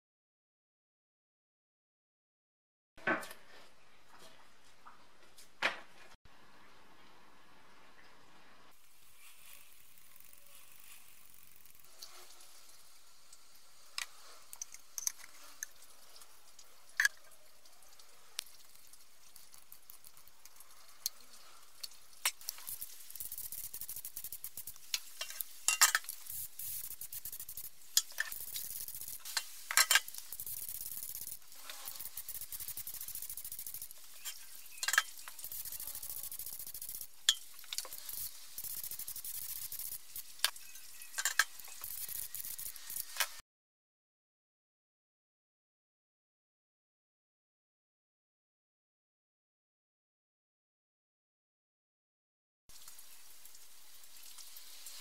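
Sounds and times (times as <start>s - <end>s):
spray gun hissing: 22.4s - 34.0s.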